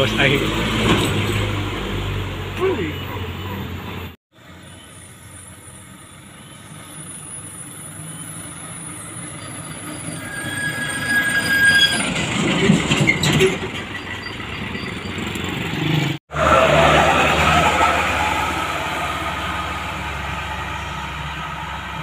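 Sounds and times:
truck engine and tyre noise: 0.0s - 22.0s
high brake squeal: 4.5s - 15.4s.

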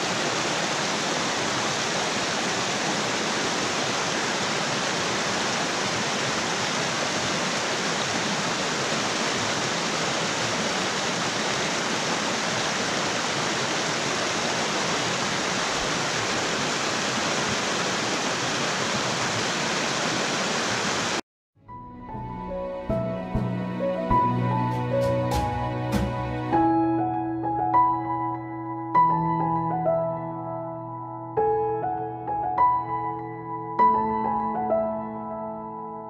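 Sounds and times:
river rushing over rapids: 0.0s - 21.2s.

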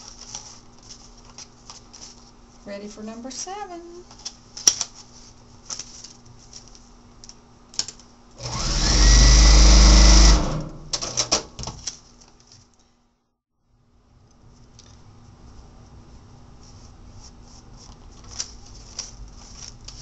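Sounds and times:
paper and fabric rustling: 0.0s - 7.0s, 15.4s - 20.0s
sewing machine stitching: 8.4s - 10.9s.

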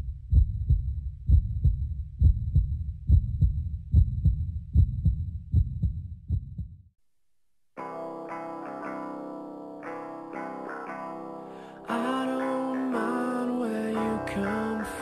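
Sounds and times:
heartbeat double thumps: 0.0s - 6.9s.

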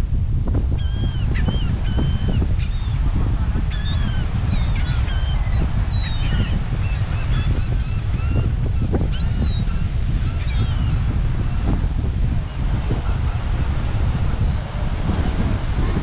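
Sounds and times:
surf: 0.0s - 16.0s
wind rumble on microphone: 0.0s - 16.0s
gulls squawking: 3.7s - 11.1s.

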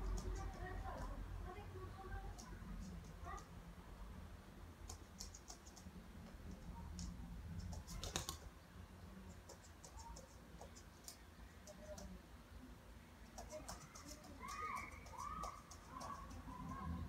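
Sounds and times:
light clicking and ticking: 2.2s - 3.5s.

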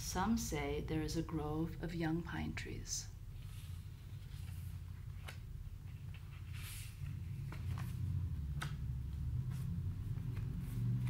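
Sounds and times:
low room hum: 0.0s - 11.0s
paper rustling: 3.4s - 11.0s.

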